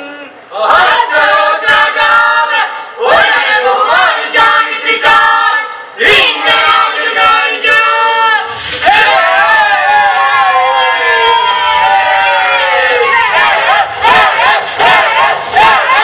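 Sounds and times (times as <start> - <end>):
female choir singing: 0.5 - 8.6, 13.0 - 16.0.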